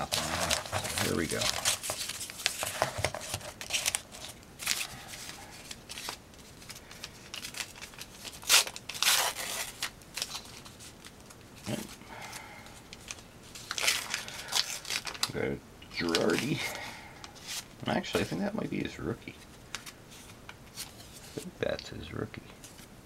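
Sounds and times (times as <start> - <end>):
handling rustle: 0.0 - 12.0
foil pack crinkling and tearing: 0.0 - 15.4, 16.0 - 16.8.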